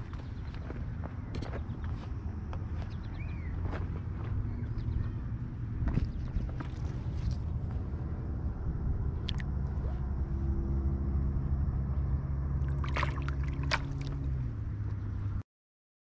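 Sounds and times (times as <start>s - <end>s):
engine running steadily: 0.0s - 15.4s
fish splashing in water: 12.6s - 14.5s.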